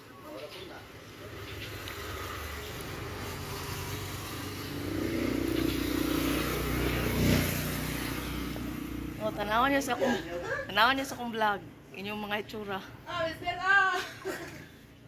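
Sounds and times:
vehicle engine passing: 0.8 - 11.2.

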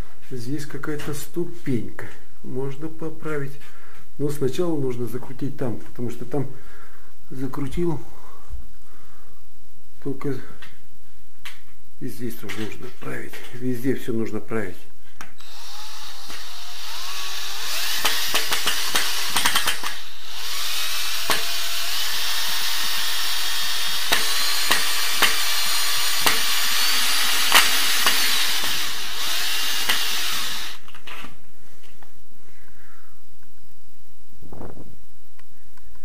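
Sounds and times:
electric drill driving screws: 15.4 - 31.0
sharp clicks: 17.9 - 20.0.

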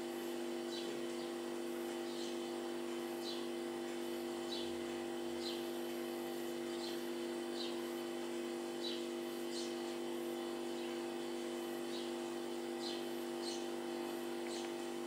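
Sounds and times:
steady low hum: 0.0 - 15.0
sparrows chirping: 0.5 - 15.0.

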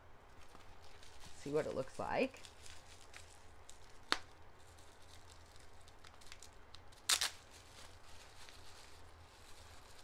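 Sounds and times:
faint rustling: 0.3 - 1.6
bubble wrap crackling: 0.3 - 10.0.

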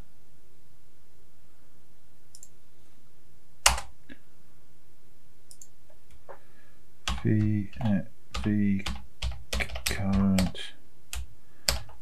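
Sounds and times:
keyboard and mouse clicks: 2.3 - 2.6, 3.6 - 3.9, 5.5 - 6.2, 7.1 - 12.0.

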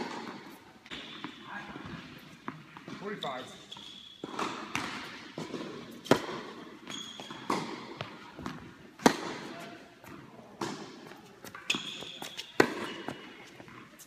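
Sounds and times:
tennis ball hits and bounces: 3.8 - 13.8.

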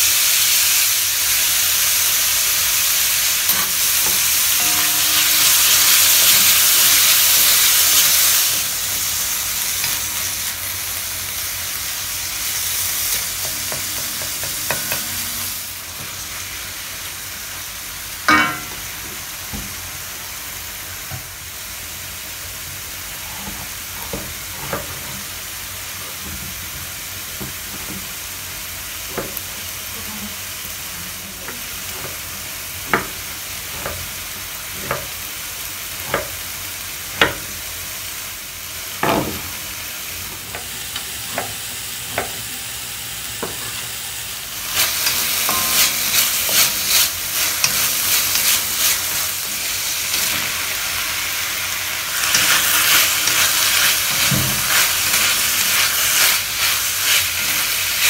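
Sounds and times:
meat sizzling in a wok: 0.0 - 58.0
wooden spatula stirring in wok: 43.4 - 51.1.

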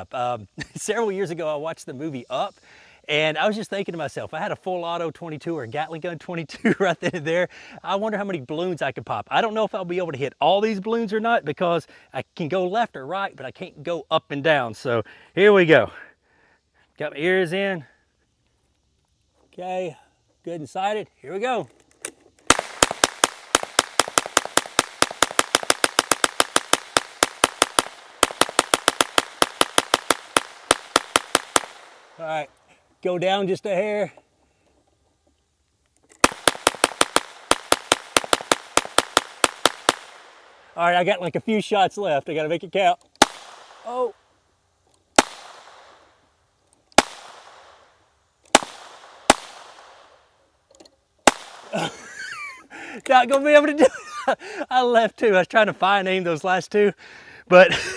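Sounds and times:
gatling gun firing rapidly: 22.5 - 31.9, 36.2 - 40.2
gunshot cracks with echo: 22.5 - 32.2, 36.2 - 40.5, 43.2 - 43.9, 45.2 - 46.0, 47.0 - 47.8, 48.5 - 50.1, 51.3 - 51.9.

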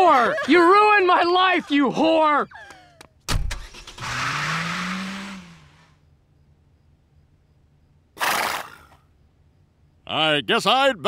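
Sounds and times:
car engine accelerating: 3.5 - 6.0.

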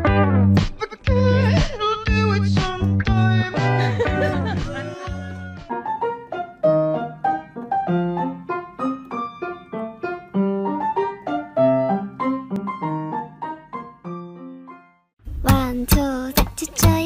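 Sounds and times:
piano melody: 2.2 - 17.0.

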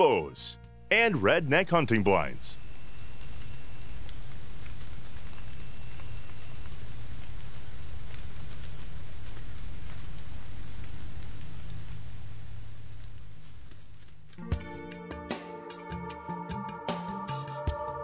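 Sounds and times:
insects shrilling: 1.4 - 14.4.

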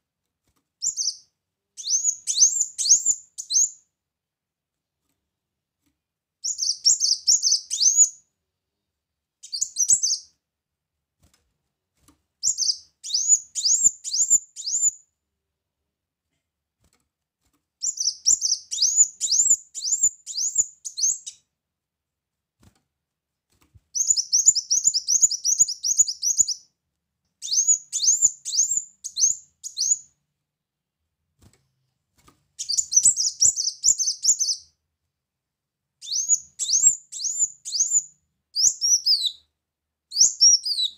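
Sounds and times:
sunbird singing rapid high chirps: 6.4 - 8.1, 17.8 - 21.4, 24.0 - 26.7, 27.4 - 30.0, 32.6 - 34.7, 36.0 - 39.4, 40.1 - 40.9.

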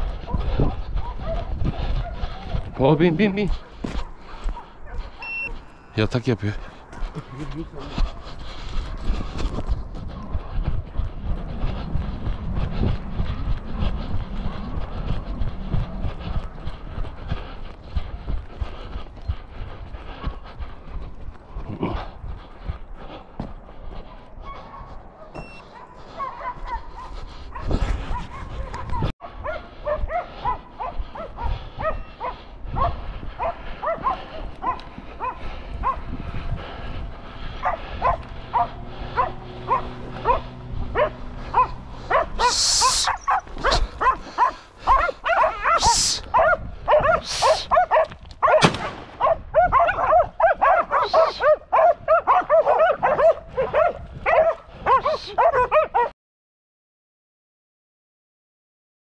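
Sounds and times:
dogs barking and yelping: 0.0 - 2.8, 3.5 - 5.7, 6.8 - 21.0, 23.9 - 56.1
loud hissing noise: 42.5 - 43.2, 45.8 - 46.2.

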